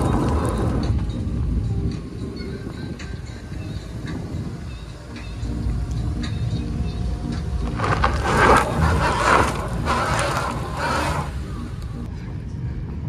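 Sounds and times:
engine rumbling under load: 0.0s - 13.0s
tyre spinning spraying dirt: 4.8s - 12.0s.

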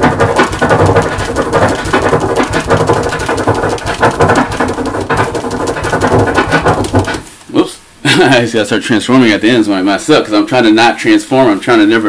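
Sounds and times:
vinyl record scratching: 0.0s - 7.3s.

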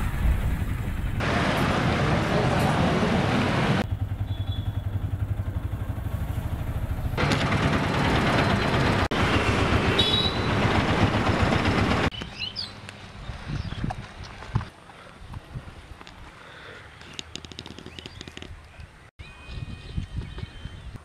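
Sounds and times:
rickshaw engine throbbing: 0.0s - 12.1s
road noise: 0.0s - 19.1s
faint bird chirps: 4.2s - 4.9s.

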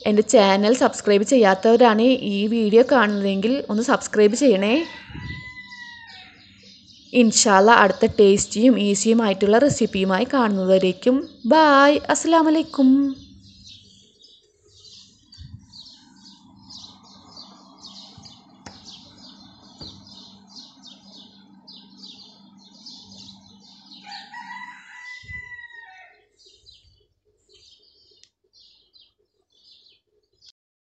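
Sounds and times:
small birds chirping: 0.0s - 30.5s
rooster crowing: 4.6s - 6.6s, 23.9s - 26.4s.

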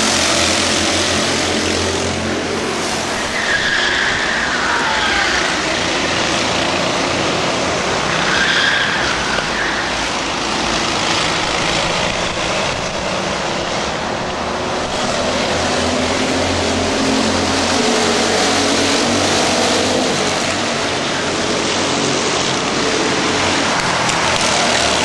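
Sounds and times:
racing kart engines: 0.0s - 25.0s.

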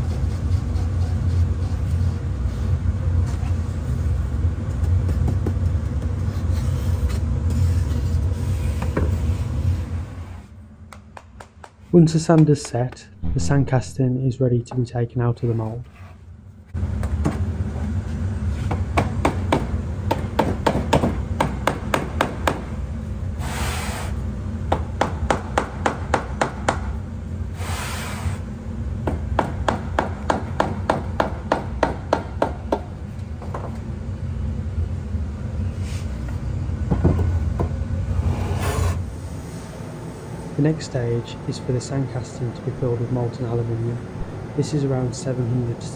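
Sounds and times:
low machinery hum: 0.0s - 27.8s, 28.4s - 45.9s
small hammer tapping on wood: 10.9s - 11.8s
short hissing bursts: 23.4s - 24.2s.

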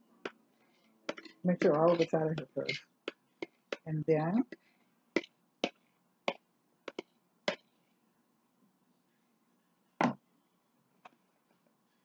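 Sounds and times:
metal spoon knocking plastic bowl: 1.1s - 4.6s.

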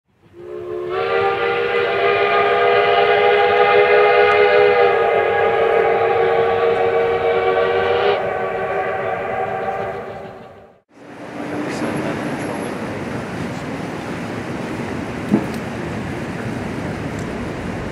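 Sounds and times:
locomotive air horn: 0.3s - 10.8s.

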